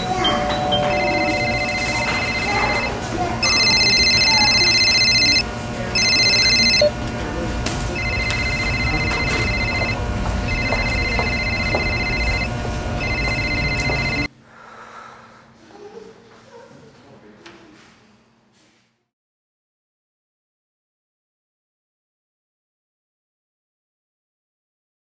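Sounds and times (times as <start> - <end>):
electronic phone ringing: 0.0 - 7.0, 7.9 - 14.3
low background rumble: 6.5 - 14.2.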